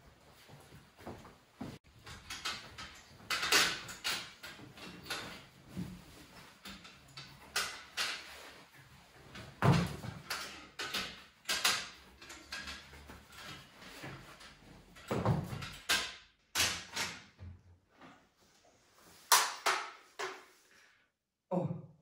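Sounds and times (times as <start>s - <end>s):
clothing rustling and handling: 0.0s - 15.9s.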